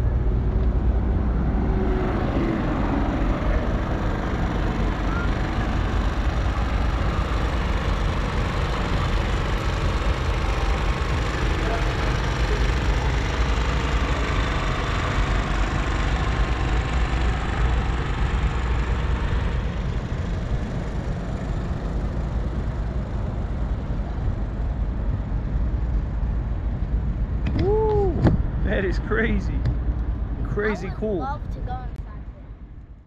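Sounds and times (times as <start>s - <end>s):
outdoor rumble and hiss: 0.0s - 33.0s.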